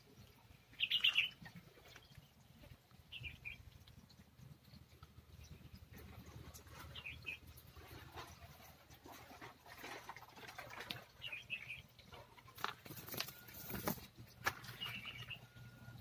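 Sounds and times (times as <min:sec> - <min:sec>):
small bird chirping: 0:00.7 - 0:05.8, 0:06.8 - 0:07.6, 0:14.7 - 0:15.7
scattered clicks and rustles: 0:12.5 - 0:14.9.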